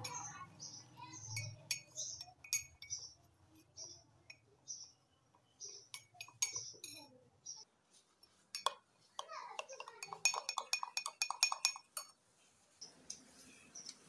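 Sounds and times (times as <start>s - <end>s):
metal spoon clinking glass mug: 1.2s - 4.9s, 5.7s - 7.1s, 9.6s - 12.2s.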